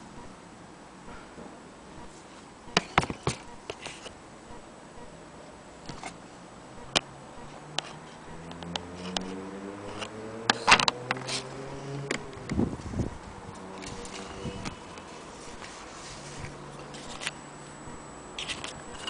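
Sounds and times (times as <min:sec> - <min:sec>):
low droning hum: 0:11.5 - 0:15.6.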